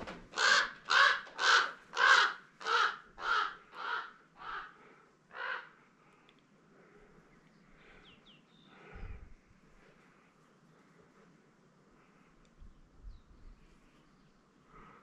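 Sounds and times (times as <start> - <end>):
crow cawing: 0.3 - 5.8.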